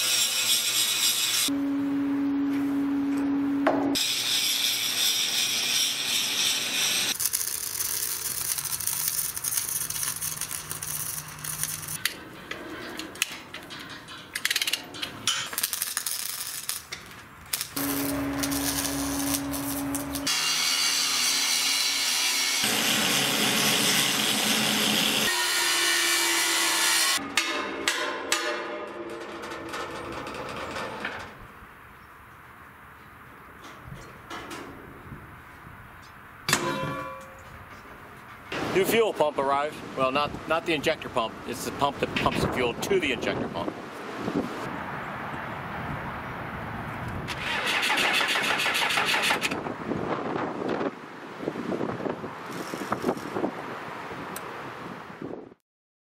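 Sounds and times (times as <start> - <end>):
power tool grinding steel: 0.0 - 1.5, 4.0 - 12.0, 17.8 - 27.2
welder crackling sputter: 6.9 - 12.1, 15.5 - 20.3.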